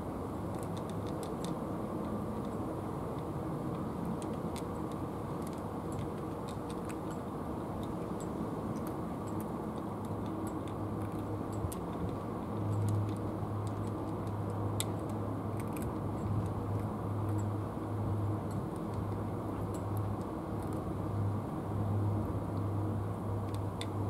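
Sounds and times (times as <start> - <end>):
low steady hum: 0.0 - 24.0
cats crunching dry food: 14.9 - 16.6.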